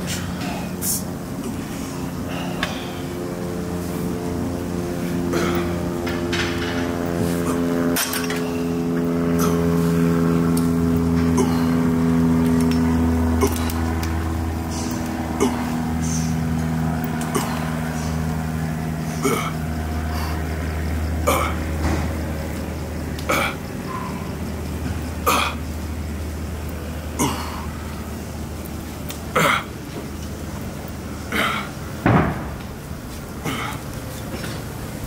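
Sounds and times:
steady low hum: 0.0 - 35.0
man grunting with exertion: 5.2 - 5.9, 9.2 - 10.1, 11.2 - 12.4, 13.3 - 14.0, 14.7 - 16.6, 17.2 - 18.2, 19.0 - 20.4, 21.2 - 21.6, 23.2 - 23.6, 25.2 - 25.6, 27.1 - 27.7, 29.3 - 29.7.

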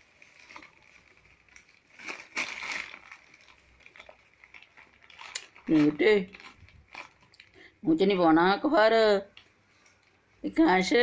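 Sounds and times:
newspaper rustling: 0.0 - 7.3.

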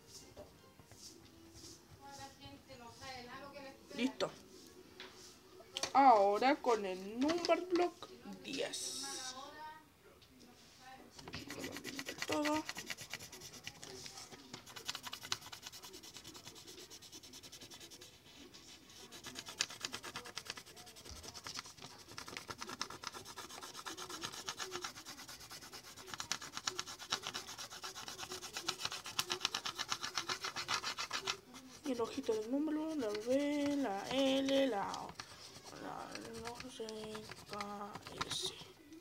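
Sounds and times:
colouring strokes on paper: 0.9 - 3.1, 11.2 - 38.6.

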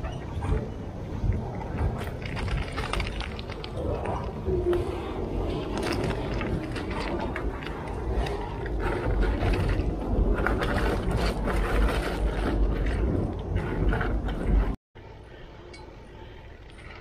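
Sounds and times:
heavy low rumble: 0.0 - 17.0
bike rattling and clicking: 1.7 - 4.4, 5.4 - 14.8.

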